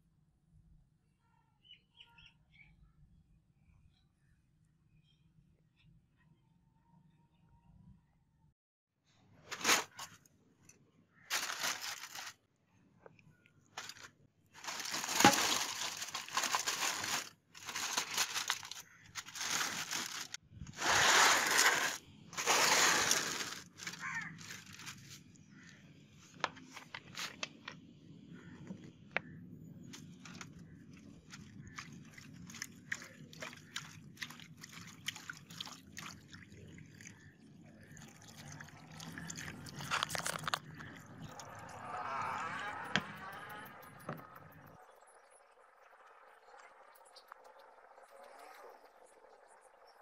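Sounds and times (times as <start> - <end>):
aluminium foil crinkling: 11.3 - 12.4, 13.8 - 25.2.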